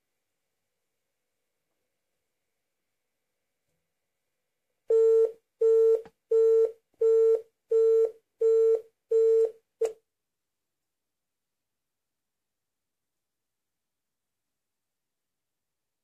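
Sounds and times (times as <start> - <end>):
telephone busy tone beeps: 4.9 - 9.5.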